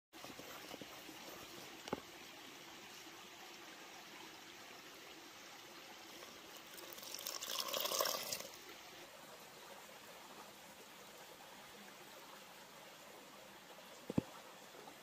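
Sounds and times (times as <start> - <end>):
water pouring into bowl: 6.6 - 8.6.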